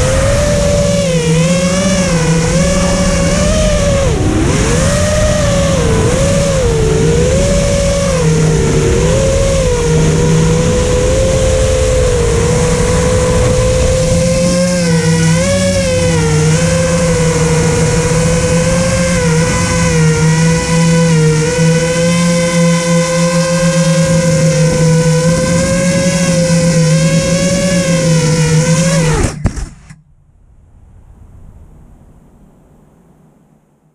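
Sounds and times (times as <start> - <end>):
drone motors whining: 0.0 - 30.1
steady low hum: 0.0 - 33.9.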